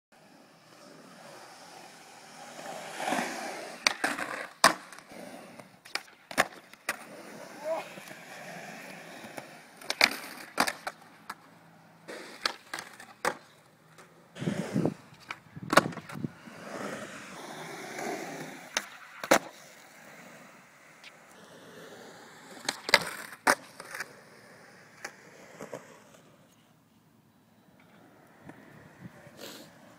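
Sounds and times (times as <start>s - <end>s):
skateboard wheels rolling on concrete: 0.1s - 29.9s
skateboard tail popping: 3.7s - 8.2s, 9.2s - 11.5s, 12.1s - 16.4s, 22.5s - 24.1s
skateboard deck landing: 3.8s - 5.0s, 5.8s - 8.2s, 9.2s - 11.5s, 12.1s - 16.3s, 18.7s - 19.6s, 22.6s - 24.1s.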